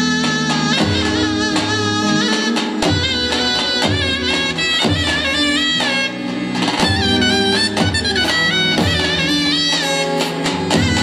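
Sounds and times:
slow heavy drum beat: 0.0s - 6.0s
bending folk melody: 0.0s - 11.0s.

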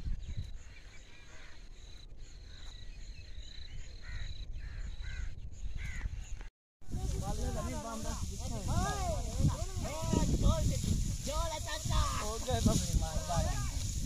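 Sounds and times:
low wind rumble: 1.9s - 14.0s
crows cawing: 4.0s - 6.1s.

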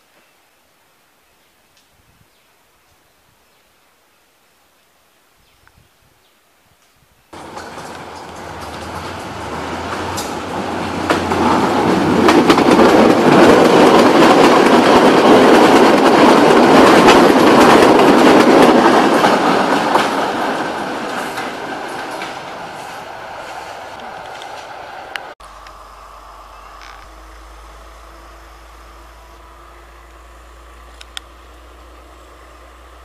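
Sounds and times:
train wheels clicking over rails: 7.4s - 25.4s.

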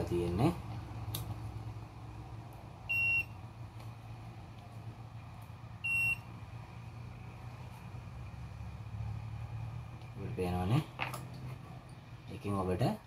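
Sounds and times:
multimeter buzzer beeps: 2.9s - 3.4s, 5.8s - 6.3s.

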